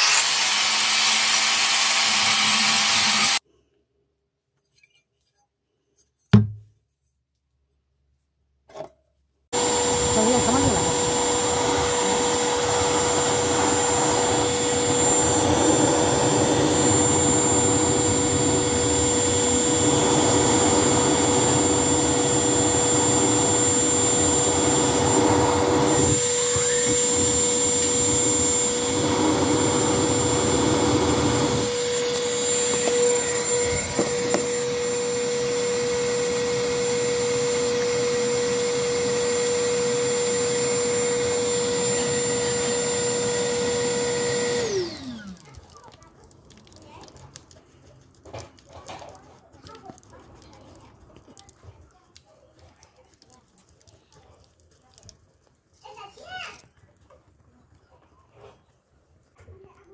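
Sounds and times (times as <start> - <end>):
electric blower motor whine: 0.0 - 3.4, 9.6 - 45.4.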